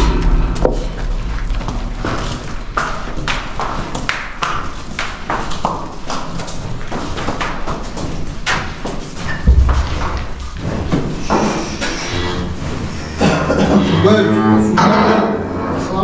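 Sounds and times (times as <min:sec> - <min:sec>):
heavy thud: 0:00.0 - 0:04.1, 0:09.4 - 0:12.0
cattle hooves on concrete: 0:01.6 - 0:13.4.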